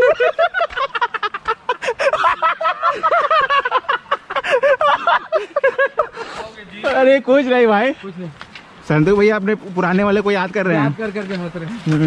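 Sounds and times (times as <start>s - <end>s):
man laughing hard: 0.0s - 6.3s.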